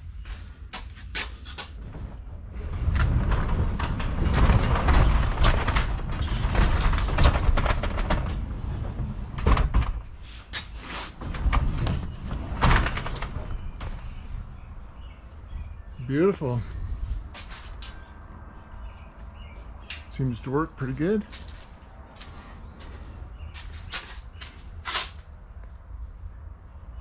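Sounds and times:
garage door clicks: 0:01.6 - 0:14.3
garage door rollers rumbling: 0:01.7 - 0:16.1.

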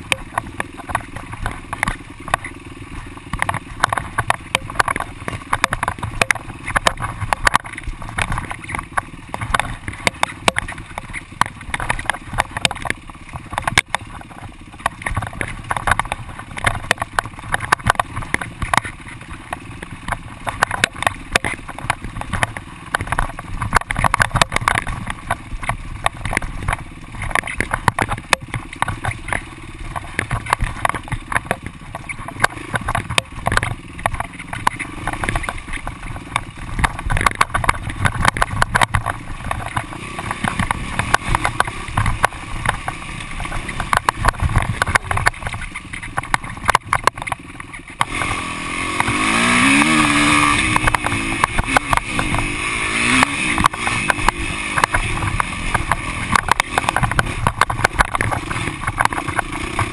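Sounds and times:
dirt bike engine running: 0:00.0 - 0:59.9
knocks and rattles from bumps: 0:00.0 - 0:59.9.

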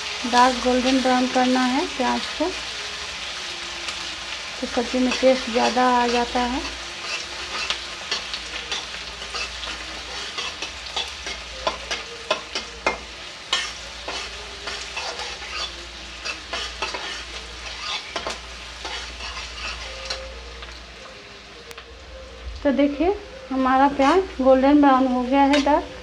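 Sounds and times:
onions sizzling in oil: 0:00.0 - 0:26.0
metal spatula scraping pan: 0:05.0 - 0:20.4.

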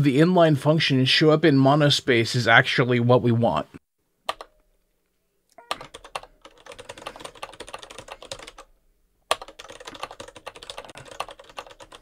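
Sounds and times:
fast typing on keyboard: 0:05.7 - 0:08.7, 0:09.3 - 0:12.0.

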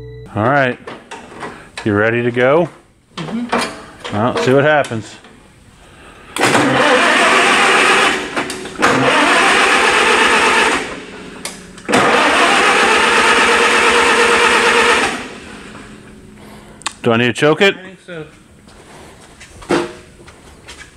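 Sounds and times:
starter cranking tractor engine: 0:06.4 - 0:15.4.

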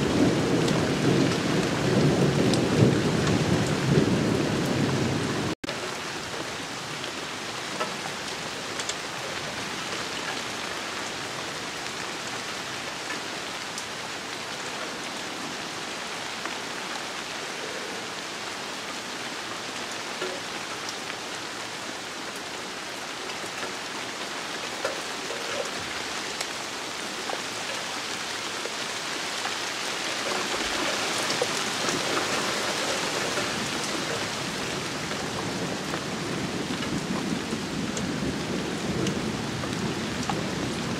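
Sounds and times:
rain falling on bushes: 0:00.0 - 0:40.9.

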